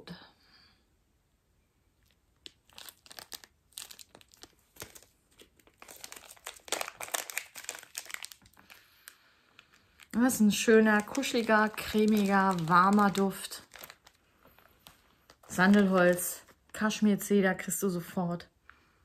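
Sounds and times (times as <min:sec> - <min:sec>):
plastic bag crinkling: 0:02.0 - 0:17.0.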